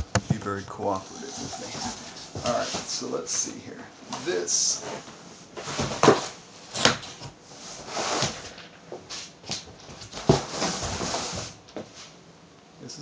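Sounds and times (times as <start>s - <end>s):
knocks: 0.0s - 0.5s
cardboard scraping and rustling: 0.0s - 3.0s, 10.1s - 11.5s.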